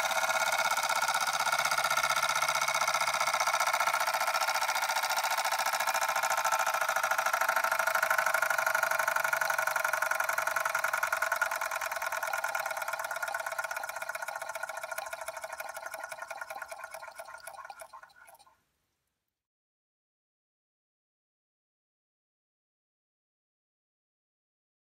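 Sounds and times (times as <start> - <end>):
steam engine chuffing: 0.0 - 18.5.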